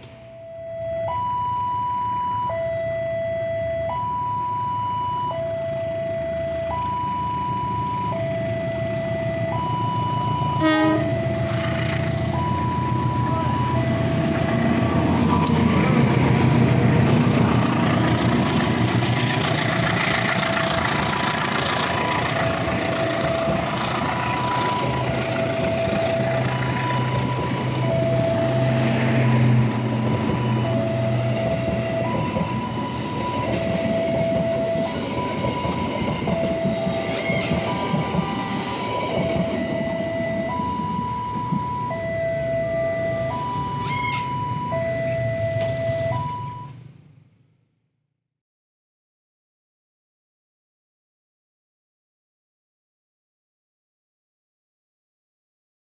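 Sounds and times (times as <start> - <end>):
level crossing alarm: 0.1 - 17.0, 19.2 - 46.8
locomotive engine rumble: 5.9 - 46.9
train coaches clattering past: 10.4 - 46.1.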